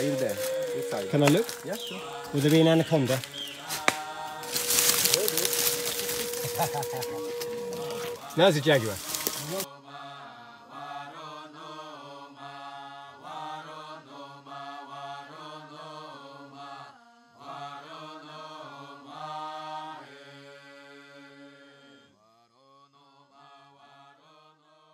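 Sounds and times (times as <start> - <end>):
steady low drone: 0.0 - 9.7
person chanting: 0.0 - 22.0.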